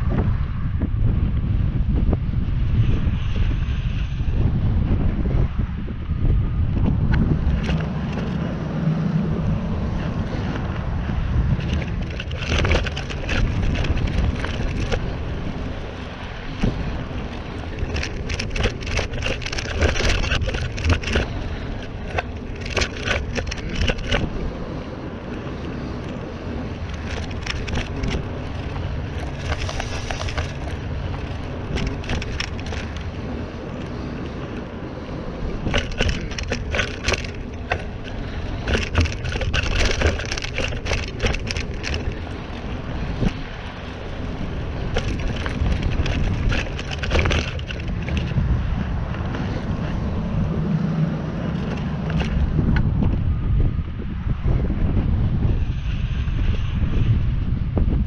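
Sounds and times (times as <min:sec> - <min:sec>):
bike tyre noise: 0:00.0 - 0:58.0
wind on microphone: 0:00.0 - 0:58.0
crackling and rattling: 0:07.1 - 0:50.5, 0:51.3 - 0:53.2.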